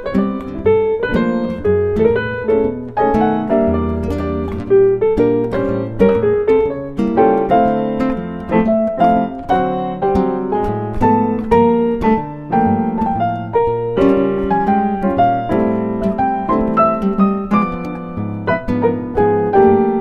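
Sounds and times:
piano playing: 0.0 - 20.0.

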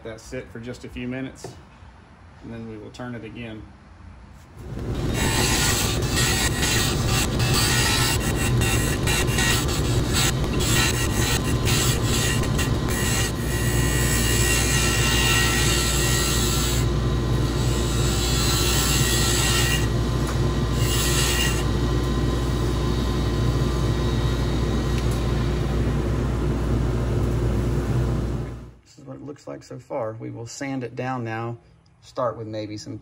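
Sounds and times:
lathe motor humming: 4.6 - 14.2
lathe tool scraping wood: 4.6 - 16.9
shop vacuum running: 4.6 - 28.8.

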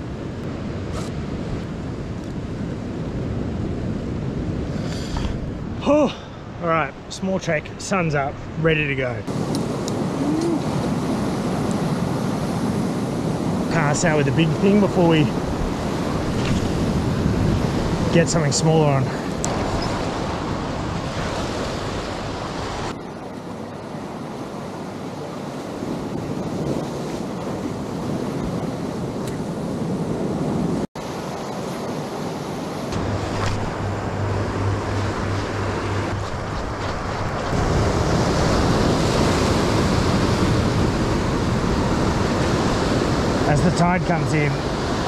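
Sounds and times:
ocean surf against rocks: 0.0 - 45.0
wind noise on microphone: 15.3 - 18.5, 32.8 - 45.0.

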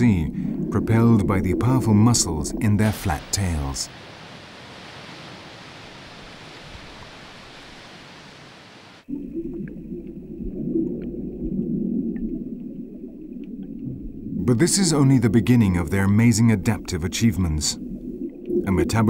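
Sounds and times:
muffled underwater rumble: 0.0 - 3.8, 9.1 - 19.0
sea water hissing: 2.8 - 9.1
faint underwater clicks: 9.5 - 14.3.

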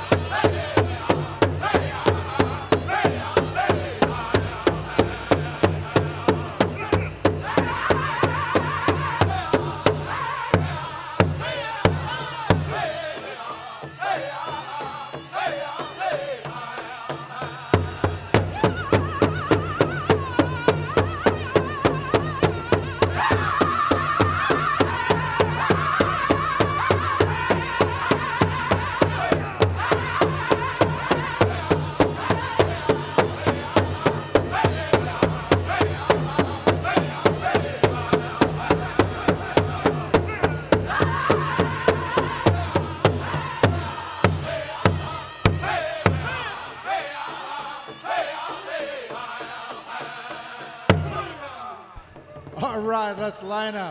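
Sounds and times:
group of voices singing: 0.0 - 52.4
large drum beating: 17.8 - 46.4.

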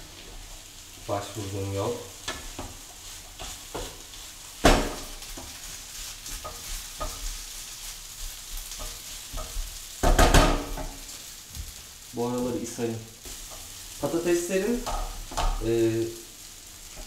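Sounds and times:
potatoes sizzling in a frying pan: 0.0 - 17.0
utensil scraping and clacking pan: 6.2 - 7.5.

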